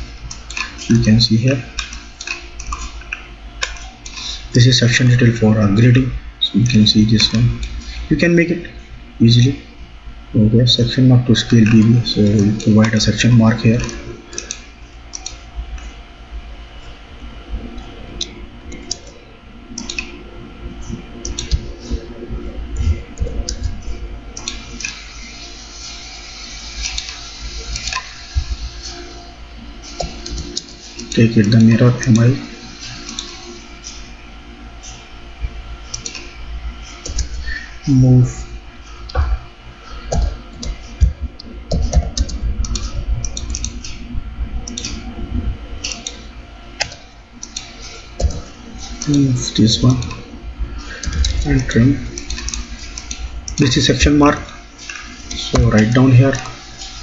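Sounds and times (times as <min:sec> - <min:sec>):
keyboard keystrokes: 0:41.7 - 0:44.0.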